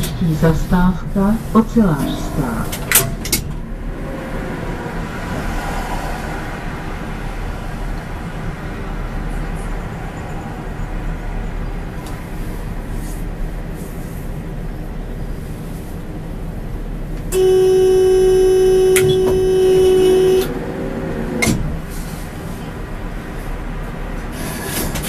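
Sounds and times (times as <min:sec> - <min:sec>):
low hum of standing tram: 0:00.0 - 0:25.0
tram warning buzzer: 0:17.3 - 0:20.7.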